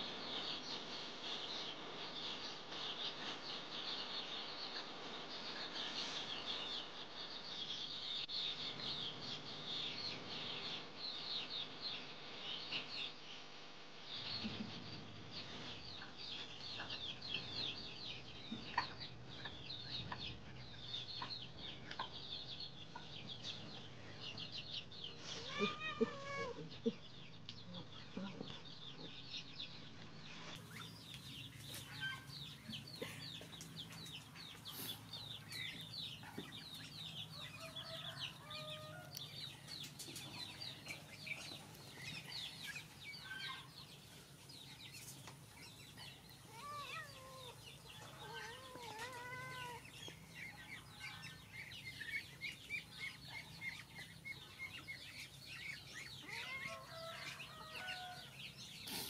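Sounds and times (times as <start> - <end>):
chickens clucking: 14.4 - 59.0.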